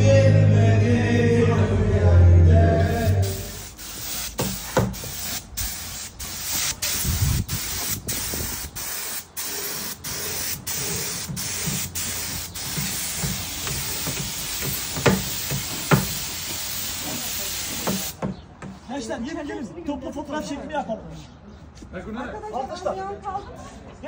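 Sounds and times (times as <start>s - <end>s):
paint spray gun hissing: 2.9s - 18.2s.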